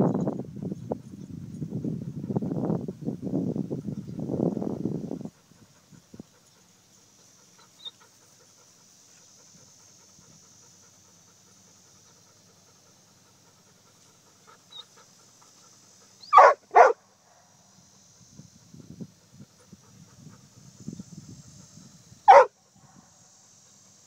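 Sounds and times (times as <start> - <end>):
high-pitched hiss: 1.4 - 24.0
dog barking: 16.2 - 17.0, 22.3 - 22.5.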